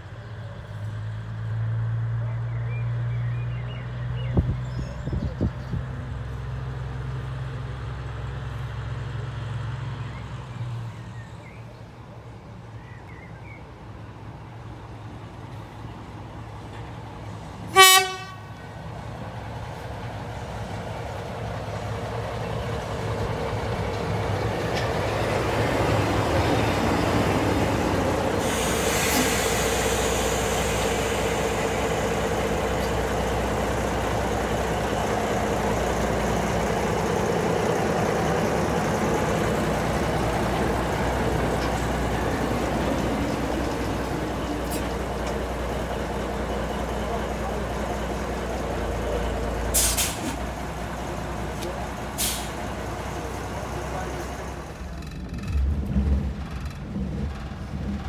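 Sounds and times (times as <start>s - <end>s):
diesel locomotive engine running: 3.1s - 58.0s
locomotive horn toot: 17.7s - 18.6s.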